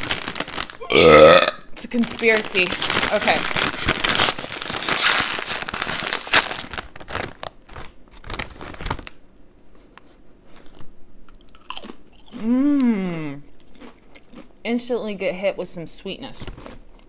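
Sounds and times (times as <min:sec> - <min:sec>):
chip bag rustling: 0:00.0 - 0:09.2
person humming mmm: 0:00.8 - 0:01.6, 0:12.3 - 0:13.5
chip crunching being chewed: 0:02.1 - 0:06.9, 0:10.5 - 0:12.9, 0:13.5 - 0:14.6.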